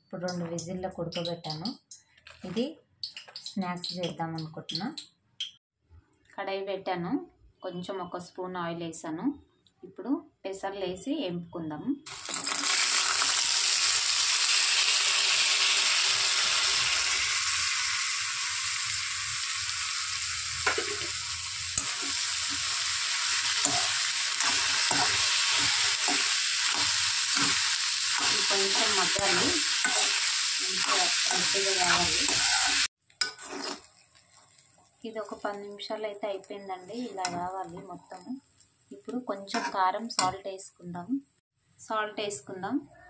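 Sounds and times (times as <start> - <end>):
beans sizzling in hot oil: 12.1 - 40.4
spoon scraping a pan: 20.7 - 21.2, 21.8 - 34.6, 39.5 - 40.4.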